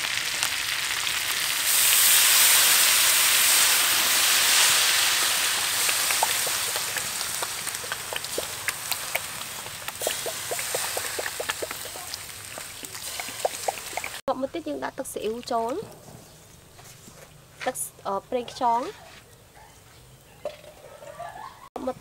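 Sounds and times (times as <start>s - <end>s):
chicken frying in hot oil: 0.0s - 14.2s
oil crackling pops: 0.0s - 14.2s.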